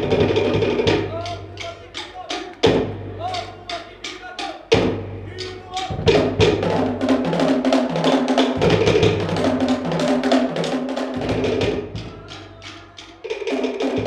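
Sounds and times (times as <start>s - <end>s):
hand drums: 0.0s - 14.0s
wooden slit drums struck rapidly: 0.0s - 14.0s
deep bass drum: 4.7s - 7.7s.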